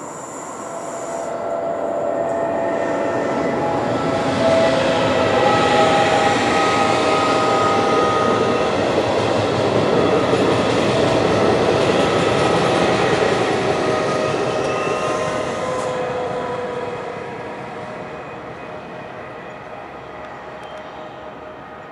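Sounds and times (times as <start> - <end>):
thin whining tones: 0.0 - 8.8
train wheels rumbling on rails: 0.0 - 21.9.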